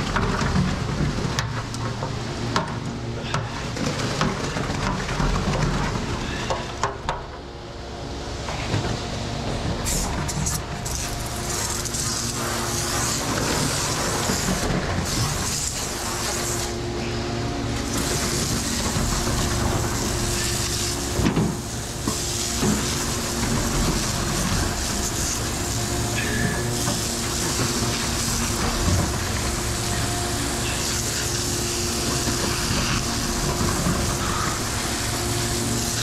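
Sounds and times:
concrete truck running: 0:00.0 - 0:36.0
water spraying from hose: 0:09.8 - 0:36.0.

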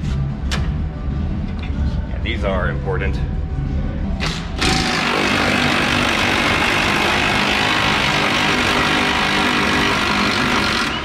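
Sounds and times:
impact wrench hammering: 0:04.2 - 0:11.0.

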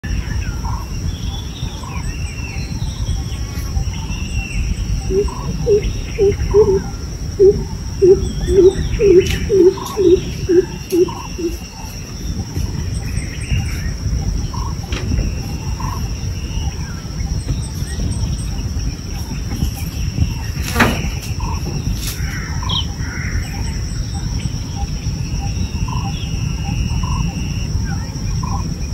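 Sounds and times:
bird chirps: 0:00.0 - 0:28.7
insect drone: 0:00.0 - 0:28.9
low rumble: 0:00.0 - 0:28.9
loud low hoots: 0:04.7 - 0:12.4.

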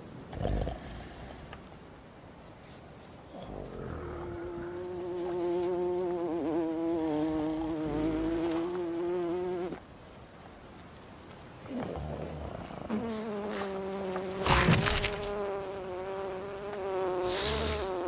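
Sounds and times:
fly buzzing: 0:03.4 - 0:10.1, 0:11.6 - 0:18.0.

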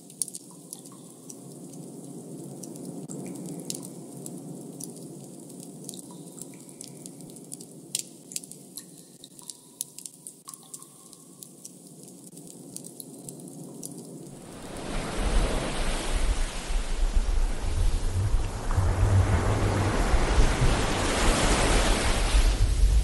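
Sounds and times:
water dripping: 0:00.0 - 0:23.0
wind: 0:00.0 - 0:23.0
sea surf rushing: 0:14.3 - 0:23.0.

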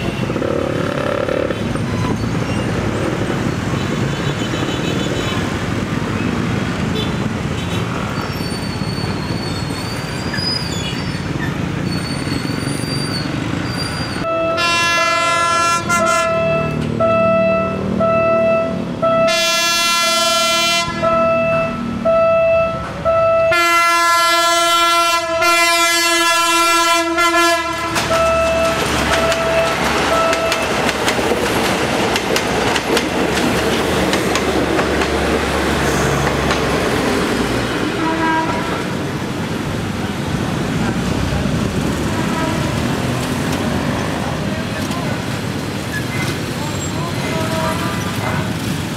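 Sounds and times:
train horn blasts: 0:14.2 - 0:30.7, 0:37.9 - 0:39.0, 0:42.0 - 0:42.9
train wheels clacking on track: 0:27.7 - 0:39.2.

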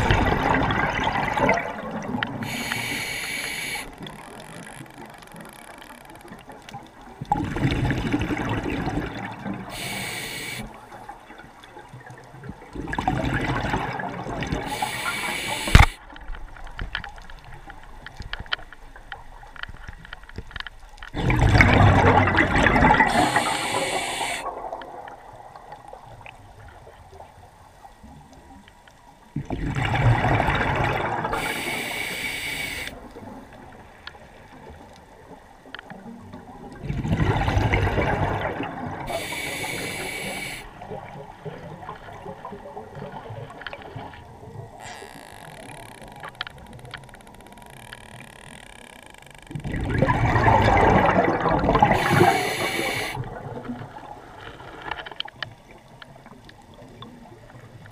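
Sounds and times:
exhaled bubbles rushing: 0:00.0 - 0:02.5, 0:07.2 - 0:09.8, 0:12.0 - 0:14.9, 0:21.2 - 0:26.3, 0:29.4 - 0:31.5, 0:36.7 - 0:39.8, 0:49.5 - 0:54.3
diver breathing through regulator: 0:02.4 - 0:04.0, 0:09.7 - 0:10.7, 0:14.7 - 0:16.0, 0:23.0 - 0:24.5, 0:31.4 - 0:33.0, 0:39.1 - 0:40.7, 0:51.8 - 0:53.2.

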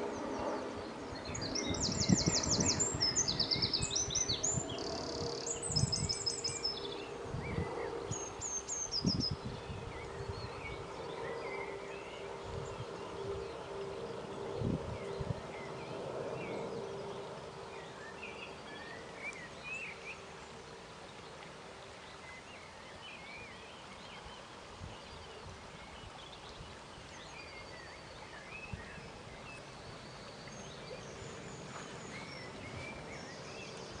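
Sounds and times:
small birds chirping: 0:00.0 - 0:13.8
river water flowing: 0:15.5 - 0:34.0.

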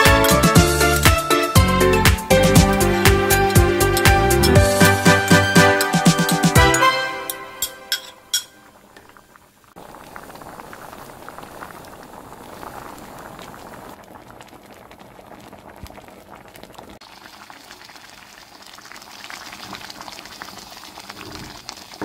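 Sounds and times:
porridge boiling and bubbling: 0:08.7 - 0:22.0.

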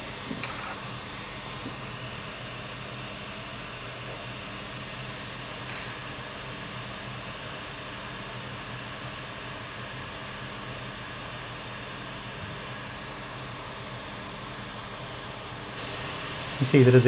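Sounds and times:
hot air blower hissing: 0:00.0 - 0:06.3, 0:12.6 - 0:17.0.

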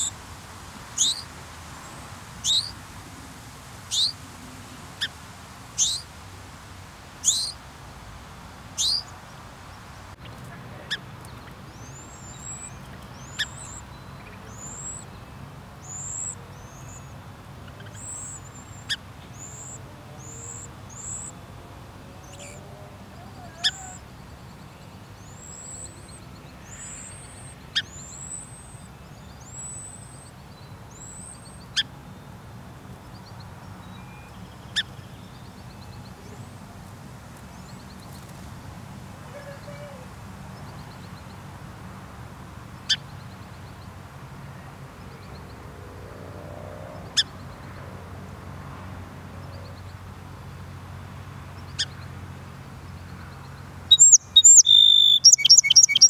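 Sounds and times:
thin high bird peeps: 0:00.9 - 0:01.3, 0:02.4 - 0:02.8, 0:03.9 - 0:04.2, 0:05.0 - 0:06.1, 0:07.2 - 0:07.6, 0:08.8 - 0:09.1, 0:53.9 - 0:56.0
songbird sharp chips: 0:53.9 - 0:56.0.

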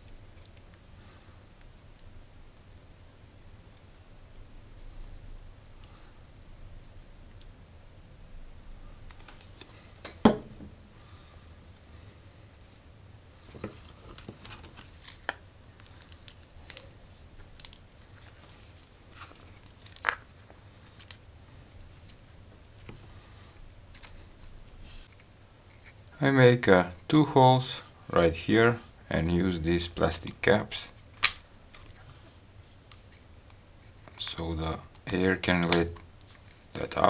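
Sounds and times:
hands handling small objects: 0:11.7 - 0:26.1.

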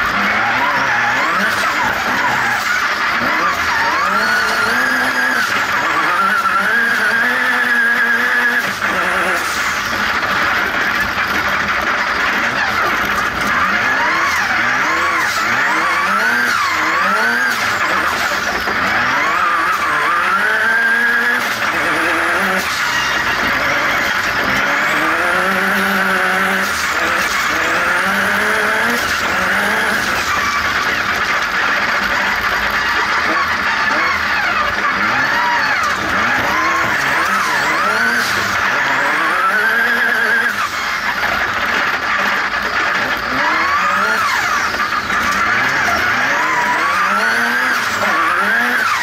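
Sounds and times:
racing buggy engine revving: 0:00.0 - 0:49.0.

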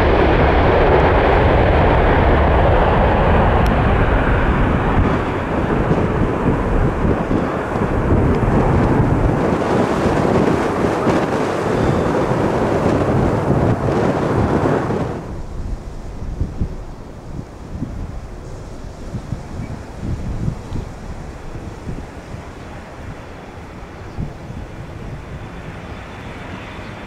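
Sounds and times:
jet engines rumbling: 0:00.0 - 0:27.0.

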